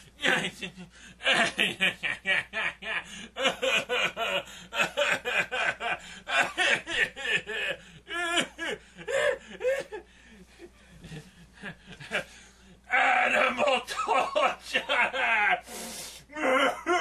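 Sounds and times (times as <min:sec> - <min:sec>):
man snickering: 0:16.4 - 0:17.0.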